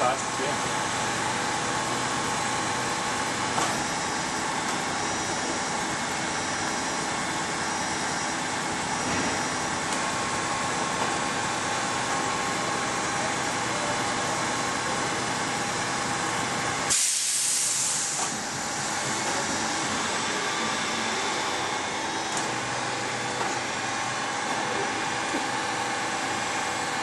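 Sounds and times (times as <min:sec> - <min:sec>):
milling machine running: 0:00.0 - 0:27.0
loud hiss: 0:16.9 - 0:18.3.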